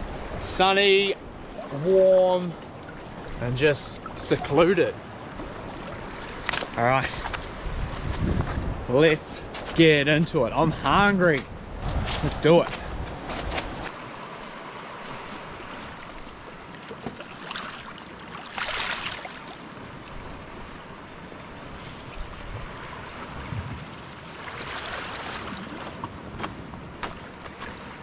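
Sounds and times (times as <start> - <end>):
wind: 0.0 - 28.0
waves lapping on pebbles: 5.5 - 8.1, 12.8 - 28.0.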